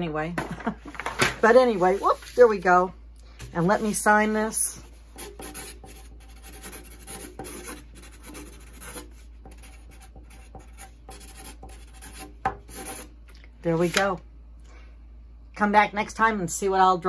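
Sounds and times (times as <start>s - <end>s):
marker scratching on paper: 3.5s - 13.1s.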